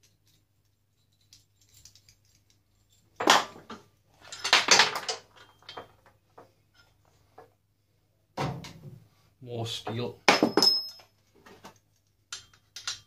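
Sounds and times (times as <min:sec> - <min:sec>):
metal parts clattering: 0:00.0 - 0:07.0, 0:11.7 - 0:13.0
metal parts clicking and clinking: 0:00.0 - 0:07.5, 0:10.4 - 0:13.0.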